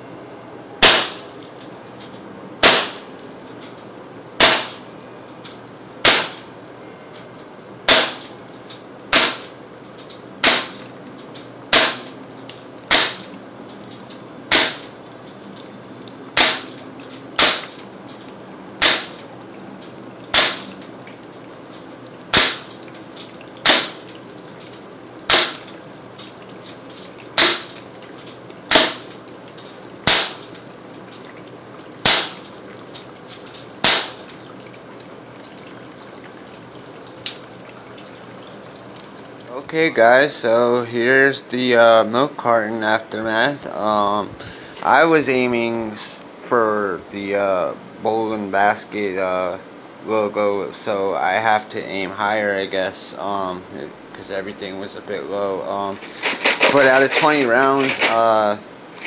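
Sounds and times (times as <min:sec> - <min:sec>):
pellet pistol shots: 0:00.8 - 0:01.2, 0:02.6 - 0:03.0, 0:04.4 - 0:04.8, 0:06.0 - 0:06.4, 0:07.9 - 0:08.3, 0:09.1 - 0:09.5, 0:10.4 - 0:10.8, 0:11.7 - 0:12.2, 0:12.9 - 0:13.3, 0:14.5 - 0:14.9, 0:16.4 - 0:16.8, 0:17.4 - 0:17.8, 0:18.8 - 0:19.2, 0:20.3 - 0:20.7, 0:22.3 - 0:22.7, 0:23.6 - 0:24.0, 0:25.3 - 0:25.7, 0:27.4 - 0:27.7, 0:28.7 - 0:29.1, 0:30.0 - 0:30.5, 0:32.0 - 0:32.4, 0:33.8 - 0:34.2.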